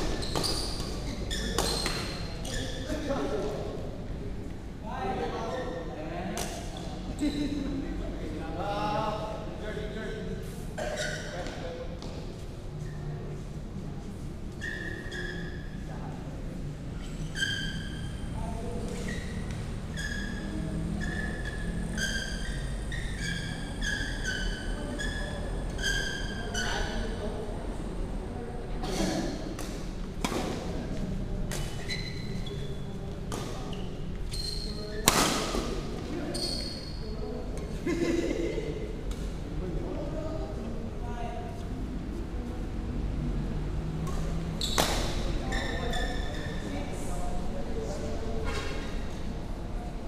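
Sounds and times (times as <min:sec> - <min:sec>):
racket hitting shuttlecock: 0:00.0 - 0:02.2, 0:29.6 - 0:30.7, 0:35.0 - 0:35.8, 0:44.1 - 0:45.2
sneakers squeaking on court: 0:00.0 - 0:03.1, 0:10.8 - 0:13.1, 0:14.6 - 0:15.8, 0:17.0 - 0:27.2, 0:31.5 - 0:37.2, 0:44.0 - 0:47.0
low hum of large hall: 0:00.0 - 0:50.0.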